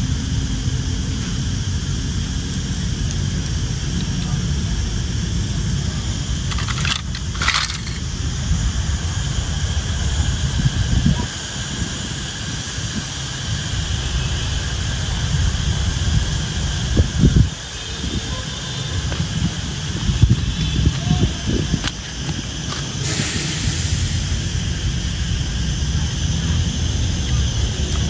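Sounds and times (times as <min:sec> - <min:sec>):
wind buffeting microphone: 0:14.8 - 0:23.2.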